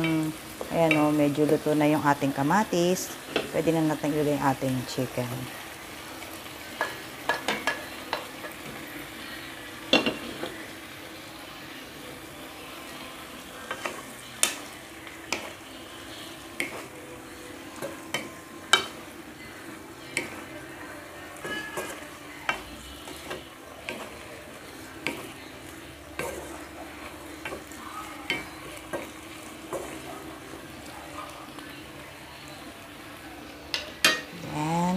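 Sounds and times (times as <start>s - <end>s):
chicken sizzling in oil: 0.0s - 34.6s
wooden spatula scraping a pan: 21.4s - 30.1s.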